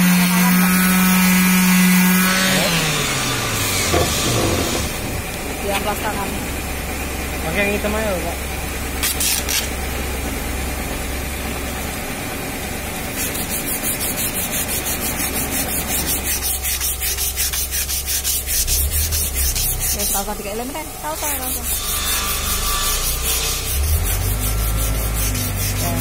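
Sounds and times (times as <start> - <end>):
hand sanding wood: 0.0 - 6.3, 13.0 - 26.0.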